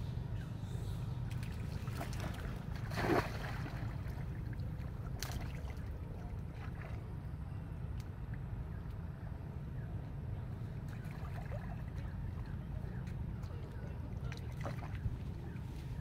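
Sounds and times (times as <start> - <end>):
water splashing: 1.4 - 5.9
wind rumble on microphone: 10.4 - 16.0.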